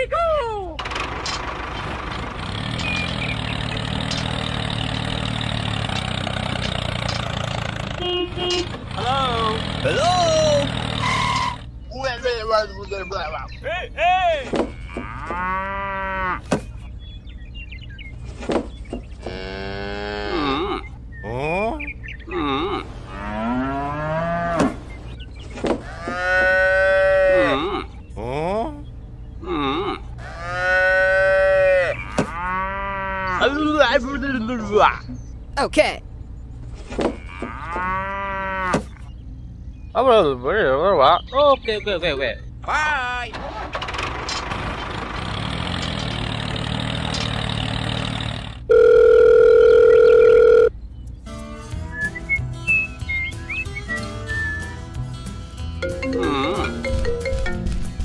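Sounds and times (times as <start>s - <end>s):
tractor engine running: 0.6s - 13.6s, 42.5s - 58.0s
cattle mooing: 14.7s - 16.5s, 19.2s - 20.9s, 22.3s - 24.8s, 25.8s - 27.9s, 29.4s - 33.6s, 37.1s - 38.8s, 56.1s - 56.8s
telephone ringing tone: 48.7s - 50.7s.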